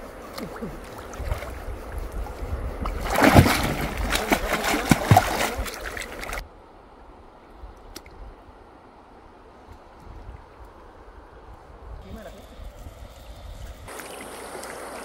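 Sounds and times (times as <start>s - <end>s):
water splashing and sloshing: 0.0s - 6.5s, 13.9s - 15.0s
water plops: 2.8s - 6.4s
faint hiss: 10.6s - 15.0s.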